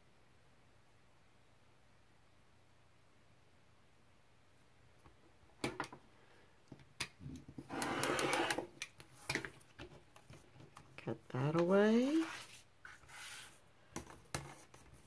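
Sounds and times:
rotary cutter cutting fabric: 0:07.7 - 0:08.7
ruler and cutter clicks: 0:07.7 - 0:08.9.

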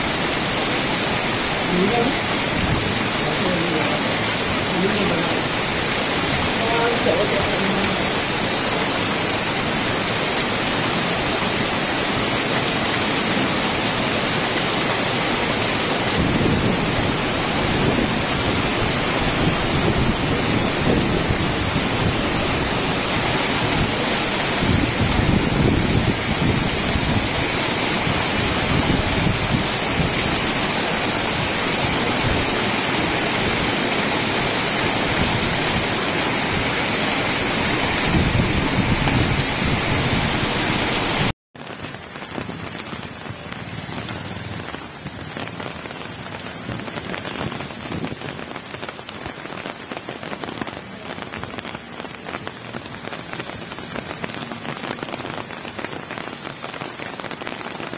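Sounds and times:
water splashing from drain spouts: 0:00.0 - 0:41.3
heavy rain on pavement: 0:00.0 - 0:57.9.

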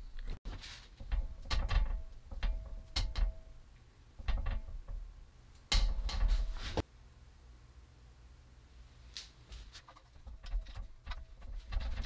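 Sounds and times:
metallic clanks and knocks: 0:00.5 - 0:06.8, 0:09.6 - 0:12.0.

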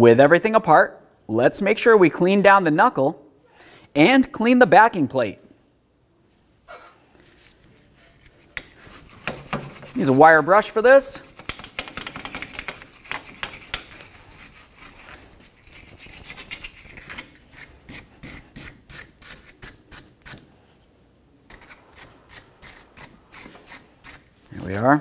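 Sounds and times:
wire brush scrubbing metal: 0:08.0 - 0:20.4, 0:21.5 - 0:24.8.

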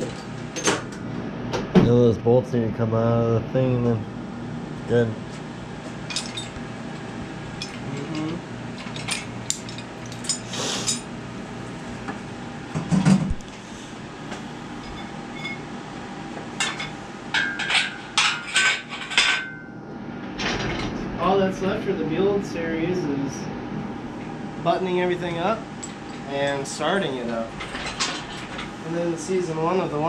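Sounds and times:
metal chain and tools clinking: 0:06.1 - 0:06.6, 0:07.6 - 0:11.1, 0:27.4 - 0:28.7.

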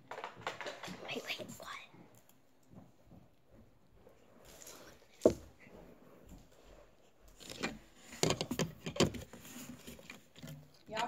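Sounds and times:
clicks and crinkly rustling: 0:00.0 - 0:03.0, 0:07.3 - 0:11.0.

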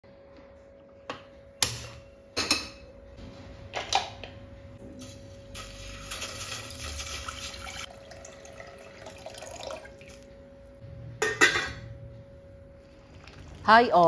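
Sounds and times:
water splashing into metal pot: 0:05.6 - 0:10.2.

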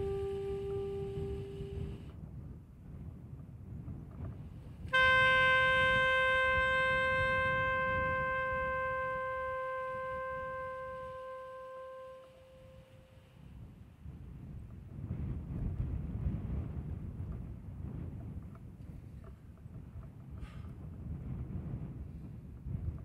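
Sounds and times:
saxophone holding long note: 0:00.0 - 0:02.2, 0:04.8 - 0:13.5
wind rumbling on microphone: 0:00.0 - 0:23.0.

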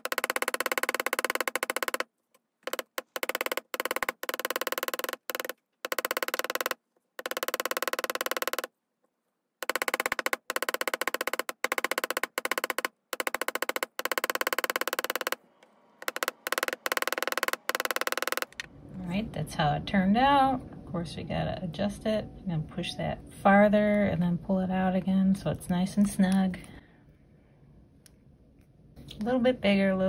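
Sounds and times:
hammer tapping metal wire: 0:00.0 - 0:08.7, 0:09.6 - 0:15.4, 0:16.0 - 0:18.7.

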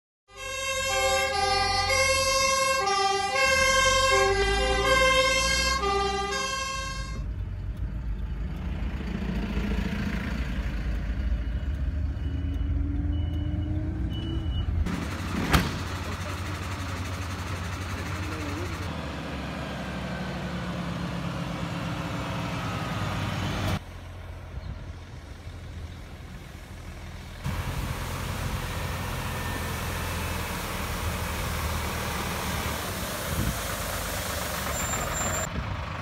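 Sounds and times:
fire engine two-tone siren: 0:00.3 - 0:07.3, 0:27.5 - 0:33.4
heavy vehicle engine: 0:00.3 - 0:36.0.

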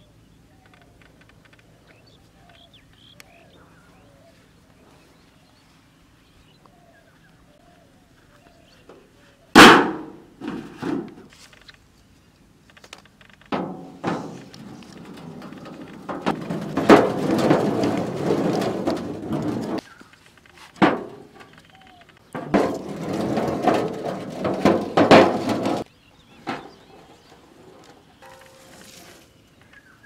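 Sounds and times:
eggs clattering in metal pan: 0:13.5 - 0:19.8, 0:22.4 - 0:29.0.

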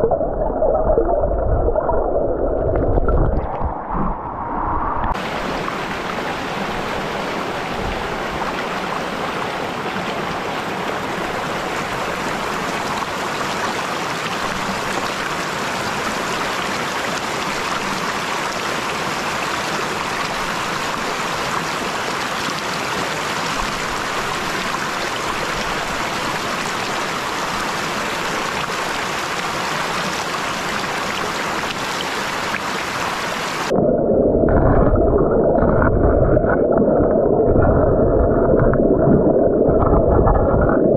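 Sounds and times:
muffled underwater rumble: 0:00.0 - 0:08.6, 0:33.7 - 0:40.9
stream rushing over rocks: 0:05.0 - 0:33.8.

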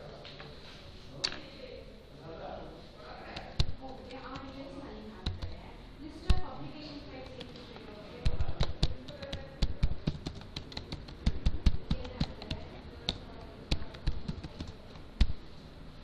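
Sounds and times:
keyboard typing clicks: 0:03.4 - 0:04.6, 0:05.2 - 0:05.6, 0:07.2 - 0:15.4.

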